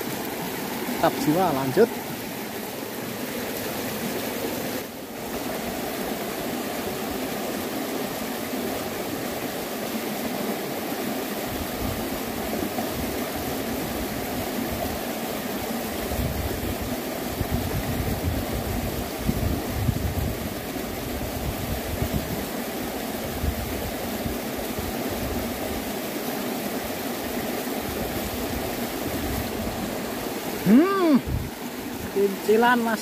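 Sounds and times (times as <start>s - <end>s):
flowing river water: 0.0s - 33.0s
low rumbling gusts: 31.2s - 31.6s.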